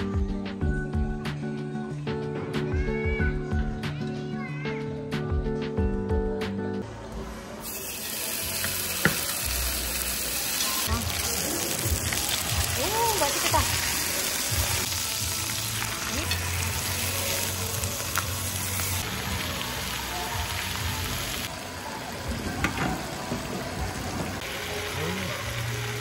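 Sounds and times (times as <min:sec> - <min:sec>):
meat sizzling on grill pan: 0:07.6 - 0:21.5.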